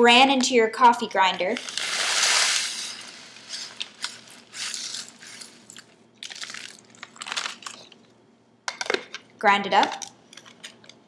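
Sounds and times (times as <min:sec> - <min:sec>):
cereal pouring into grinder bowl: 0:01.6 - 0:07.0.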